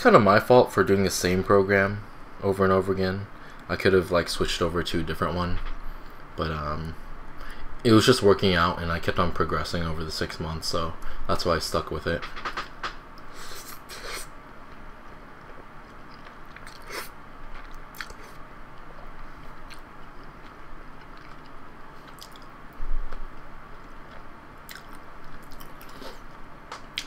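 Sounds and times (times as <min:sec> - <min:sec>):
chewing with wet clicks: 0:14.7 - 0:16.9, 0:17.6 - 0:22.5, 0:23.4 - 0:26.0.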